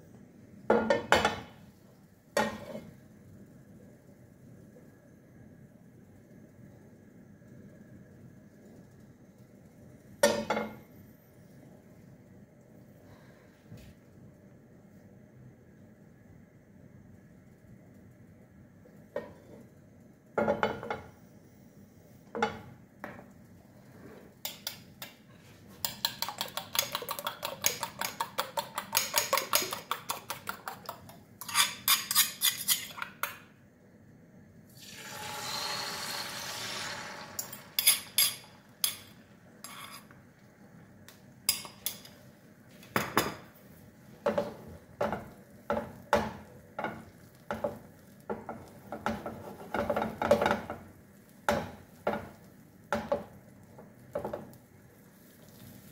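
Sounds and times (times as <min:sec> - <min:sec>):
egg sizzling in frying pan: 0:34.7 - 0:42.4, 0:43.0 - 0:55.9.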